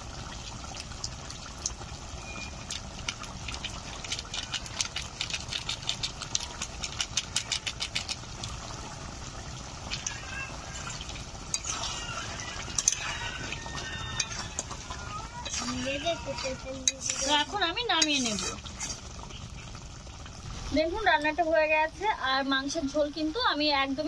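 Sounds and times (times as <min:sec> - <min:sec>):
thick curry bubbling in pan: 0:00.0 - 0:24.0
spatula scraping through curry: 0:11.5 - 0:19.3.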